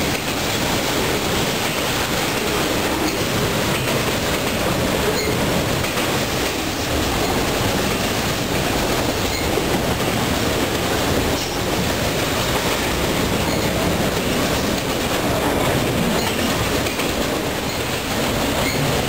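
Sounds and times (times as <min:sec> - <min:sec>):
train wheels on rails: 0:00.0 - 0:19.0.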